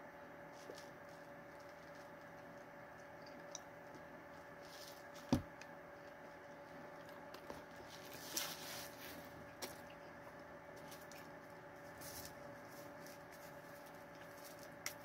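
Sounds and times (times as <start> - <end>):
low steady hum: 0.0 - 15.0
short rustle: 7.8 - 9.4.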